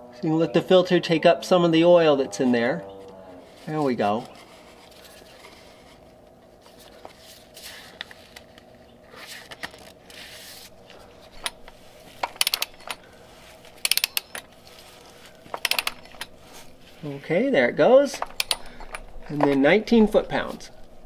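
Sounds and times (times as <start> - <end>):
soft scraping and rubbing: 3.4 - 8.4, 9.0 - 12.2, 14.5 - 17.4
ratchet wrench clicking: 12.2 - 13.0, 13.8 - 14.5, 15.6 - 16.3, 18.3 - 19.0.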